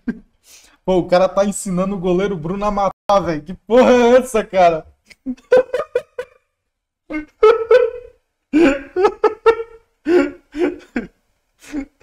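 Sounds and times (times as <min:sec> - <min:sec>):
man laughing hard: 0:05.2 - 0:06.4, 0:07.1 - 0:12.0.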